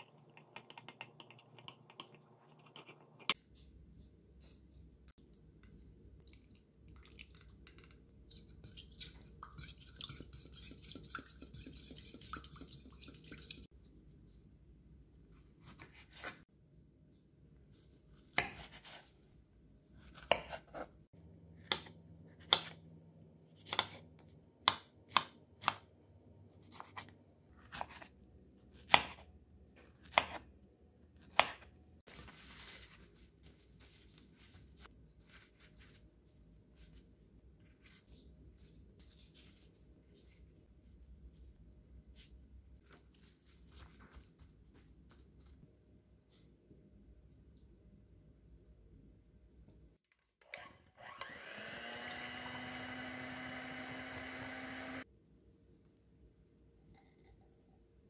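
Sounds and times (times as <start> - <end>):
paper towel rustling: 32.1 - 40.6.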